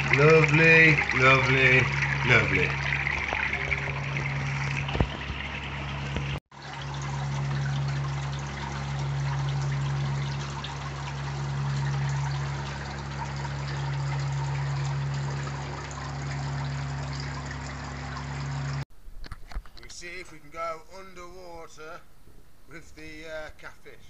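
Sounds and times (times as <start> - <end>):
water spilling into a pond: 0.0 - 18.8
pond pump humming: 0.0 - 24.0.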